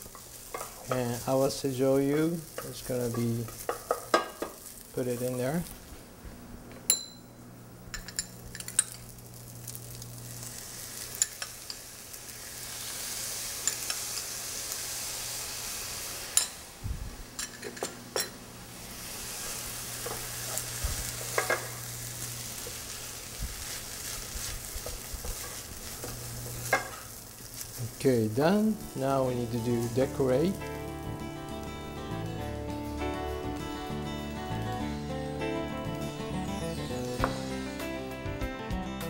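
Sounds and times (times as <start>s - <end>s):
fried rice sizzling in a pan: 0.0s - 6.0s, 8.4s - 16.8s, 18.5s - 37.7s.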